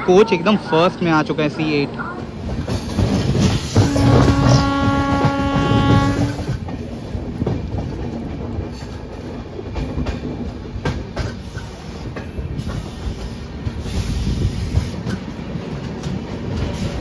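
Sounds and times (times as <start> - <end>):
train wheels clattering over rails: 2.2 - 17.0
train horn blast: 3.8 - 6.6.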